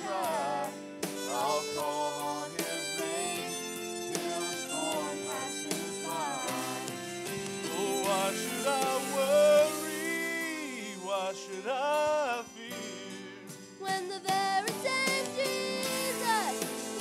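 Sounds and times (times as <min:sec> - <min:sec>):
girl singing: 0:00.0 - 0:07.0, 0:13.8 - 0:17.0
man singing: 0:00.0 - 0:13.5
instrumental accompaniment: 0:00.0 - 0:17.0.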